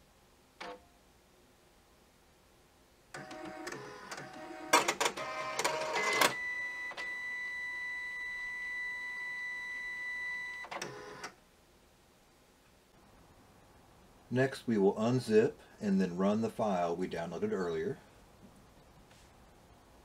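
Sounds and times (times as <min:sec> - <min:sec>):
printer motors whirring: 0:03.2 - 0:07.1, 0:10.7 - 0:11.3.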